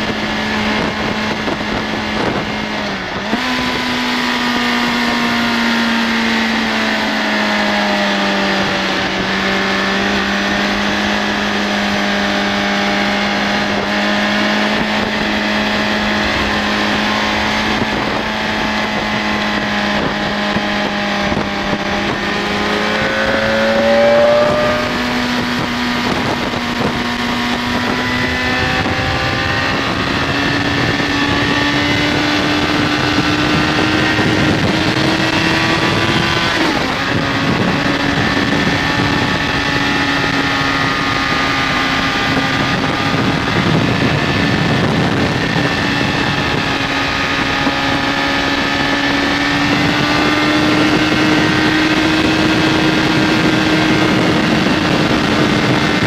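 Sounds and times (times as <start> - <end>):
wind noise: 0.0 - 56.0
motorcycle engine pulling: 10.1 - 56.0.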